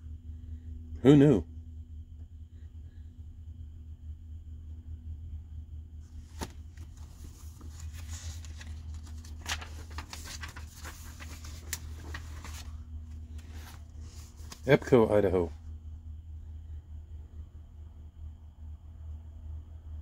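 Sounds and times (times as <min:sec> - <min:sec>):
steady low hum: 0:00.0 - 0:20.0
book pages rustling and turning: 0:06.0 - 0:14.9.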